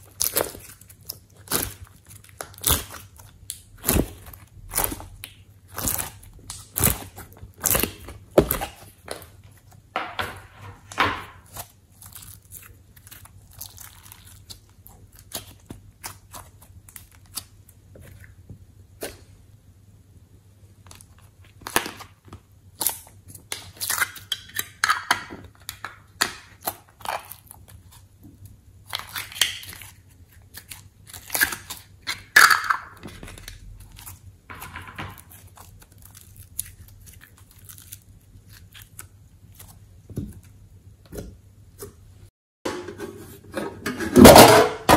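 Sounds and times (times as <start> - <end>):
sticky slime crackles: 0.0 - 9.9, 11.4 - 19.3, 26.2 - 32.2, 33.0 - 41.9.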